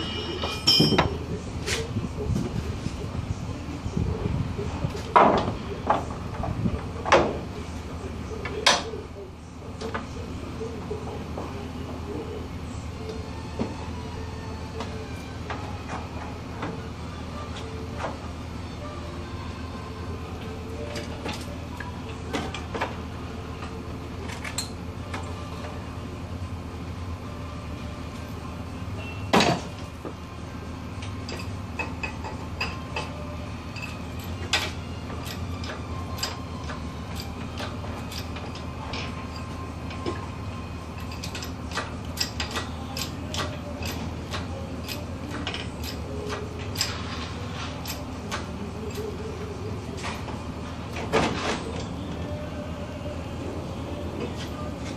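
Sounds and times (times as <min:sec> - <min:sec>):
chain hoist clicking: 0:41.0 - 0:47.0.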